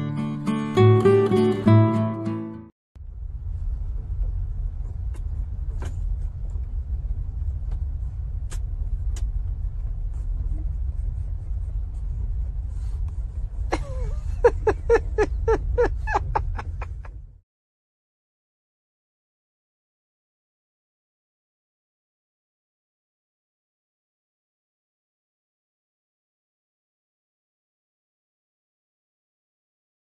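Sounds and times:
low rumble: 0:03.0 - 0:17.4.

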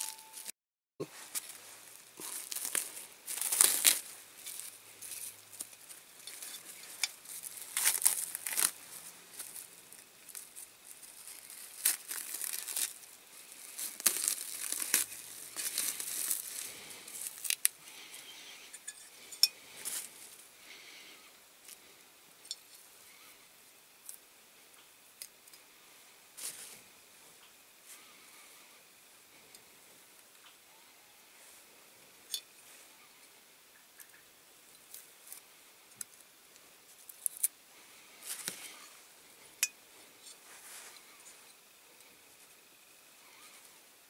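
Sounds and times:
plastic film crinkling and tearing: 0:01.3 - 0:17.8.

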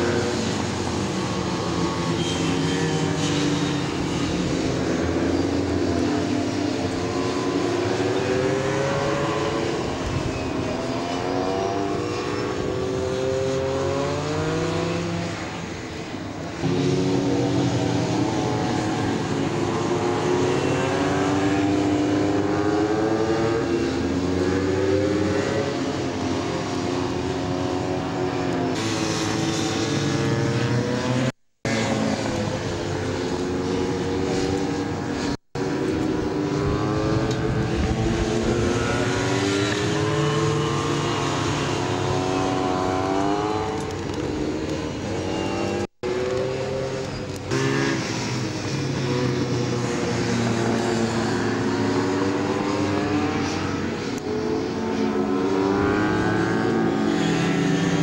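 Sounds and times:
motorcycle engine at full throttle: 0:00.0 - 0:58.0.

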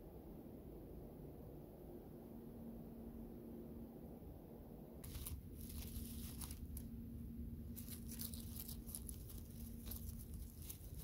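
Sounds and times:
dry leaves rustling and crackling: 0:05.0 - 0:06.9, 0:07.6 - 0:11.0.

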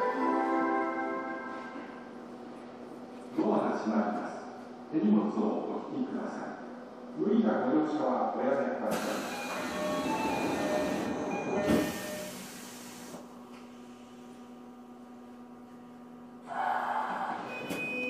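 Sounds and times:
steady low hum: 0:12.1 - 0:17.6.

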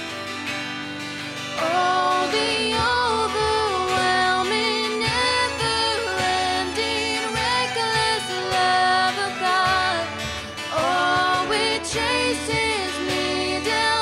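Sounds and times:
strummed acoustic guitar: 0:00.0 - 0:14.0
violin: 0:00.0 - 0:14.0
woman singing: 0:01.5 - 0:14.0.

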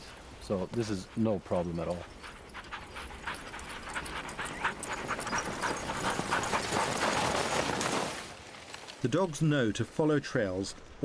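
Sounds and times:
dogs panting: 0:00.0 - 0:08.0.

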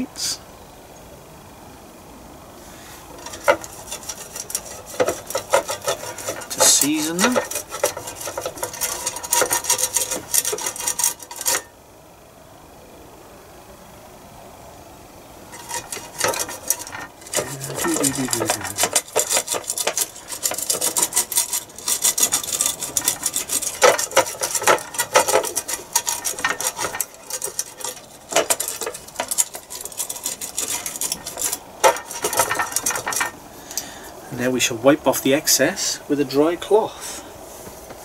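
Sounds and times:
brush rasping on ridged plates: 0:02.9 - 0:11.7, 0:15.5 - 0:33.4.

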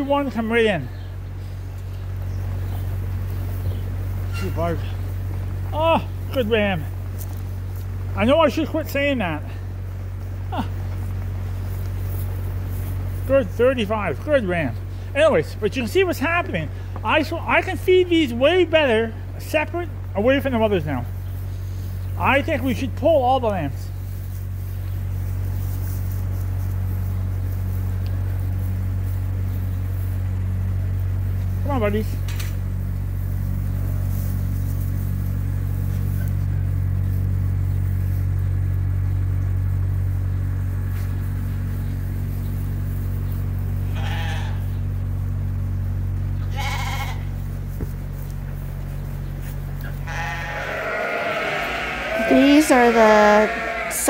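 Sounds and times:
low mechanical hum: 0:00.0 - 0:54.0
lambs bleating: 0:43.8 - 0:44.8, 0:46.4 - 0:47.4, 0:49.8 - 0:54.0.

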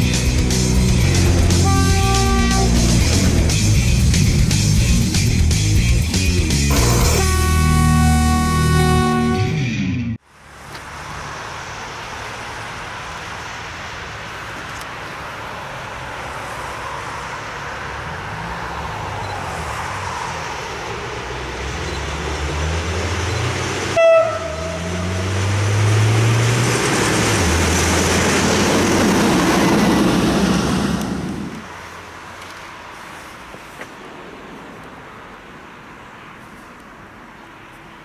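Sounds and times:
diesel locomotive engine passing: 0:00.0 - 0:36.0
locomotive horn toot: 0:01.4 - 0:03.3, 0:06.7 - 0:09.7, 0:23.9 - 0:25.2.

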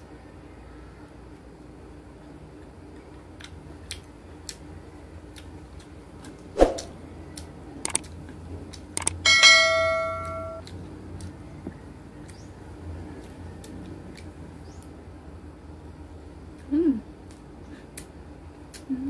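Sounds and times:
sharp clicks: 0:07.4 - 0:08.1, 0:08.7 - 0:09.2
bell ding: 0:09.3 - 0:10.6.

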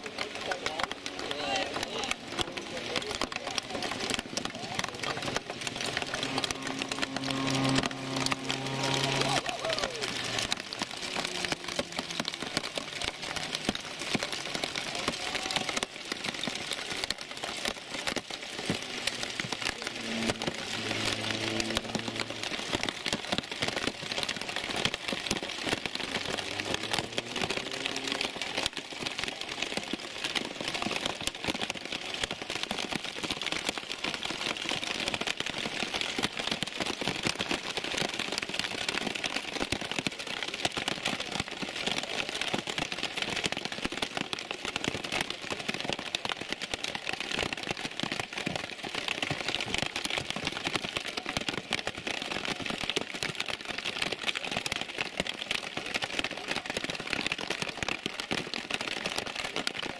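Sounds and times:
heavy rain on hard surfaces: 0:00.0 - 0:59.9.

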